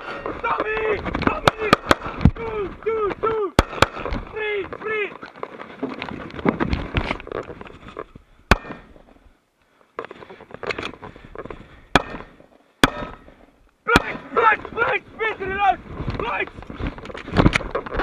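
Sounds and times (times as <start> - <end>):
gunshots: 1.3 - 2.2, 3.6 - 4.2, 8.5 - 8.9, 11.9 - 13.3.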